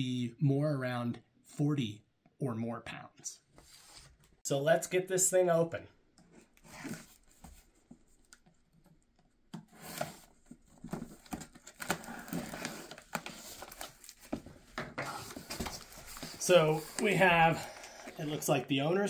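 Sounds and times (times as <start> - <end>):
cardboard flaps scraping and rustling: 9.7 - 18.0.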